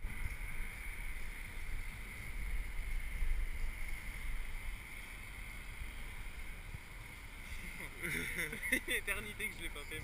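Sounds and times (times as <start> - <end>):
wind buffeting microphone: 0.0 - 8.0.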